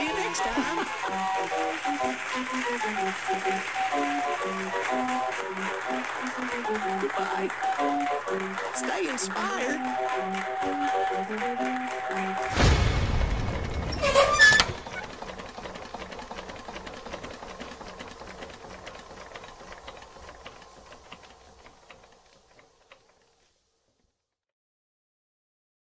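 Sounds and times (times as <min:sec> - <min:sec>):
fast mechanical clicking rattle: 0:12.4 - 0:23.5.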